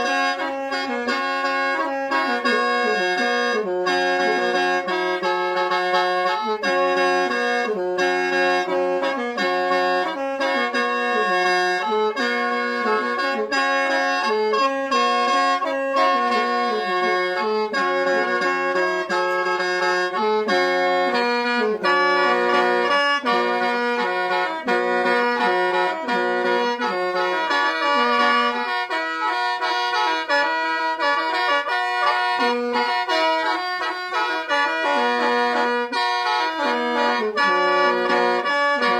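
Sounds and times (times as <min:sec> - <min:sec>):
mouth organ drone: 0:00.0 - 0:38.9
mouth organ melody in chords: 0:00.0 - 0:38.9.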